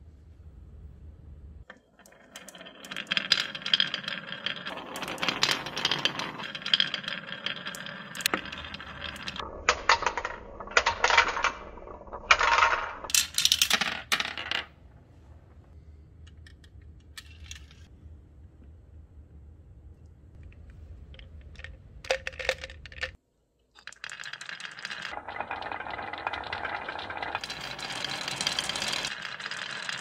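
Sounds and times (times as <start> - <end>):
marbles clattering down wooden track: 1.7 - 14.7, 21.2 - 23.2, 23.8 - 30.0
marbles dropping into toy truck: 2.3 - 14.7, 21.2 - 23.2, 23.8 - 30.0.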